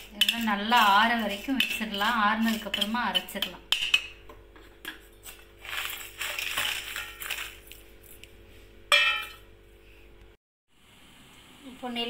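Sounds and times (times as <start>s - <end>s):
chillies clattering onto steel plate: 5.6s - 7.8s.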